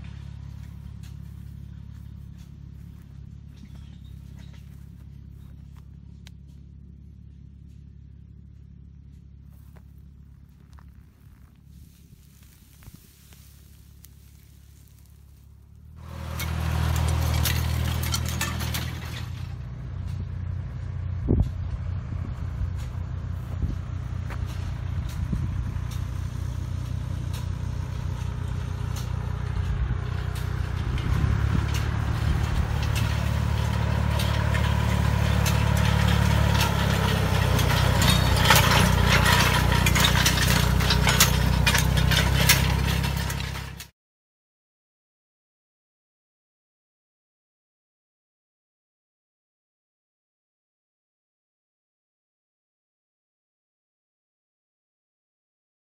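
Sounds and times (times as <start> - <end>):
hoe blade churning soil: 0.0 - 43.9
tractor engine running: 0.0 - 43.9.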